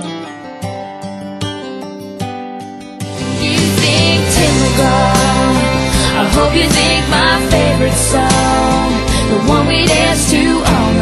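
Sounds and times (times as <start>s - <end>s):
pop song with full band: 3.1s - 11.0s.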